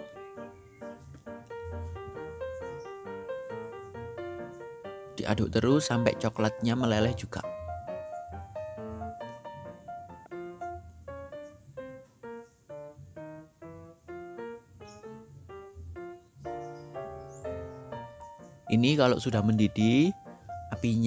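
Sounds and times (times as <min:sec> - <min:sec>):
keyboard melody: 0:00.0 - 0:21.0
bass line: 0:07.0 - 0:11.3, 0:15.2 - 0:16.6.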